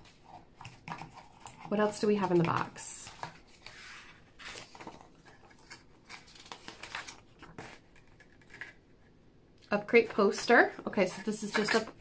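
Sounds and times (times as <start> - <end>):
paper rustling and crackling: 0.0 - 8.9.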